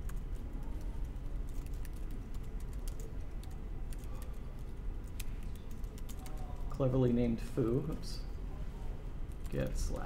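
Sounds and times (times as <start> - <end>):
laptop keyboard typing: 0.0 - 6.7
low steady room hum: 0.0 - 10.0.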